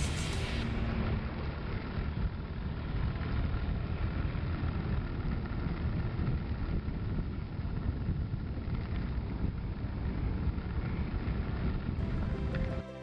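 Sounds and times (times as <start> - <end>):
wind rushing over microphone: 0.0 - 12.8
scooter engine running: 1.2 - 12.8.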